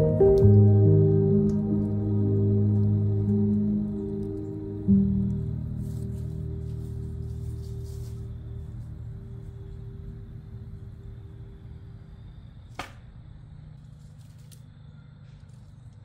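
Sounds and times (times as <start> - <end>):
low rumble: 0.0 - 13.4
sharp snap: 12.7 - 13.2.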